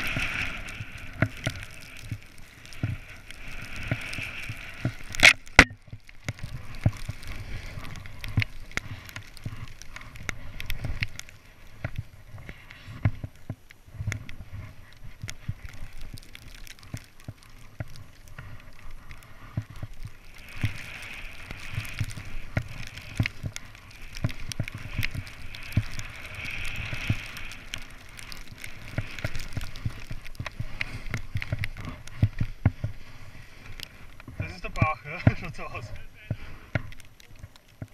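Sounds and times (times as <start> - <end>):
snowboard hissing through powder snow: 0.0 - 5.5, 6.3 - 13.1, 18.5 - 36.8.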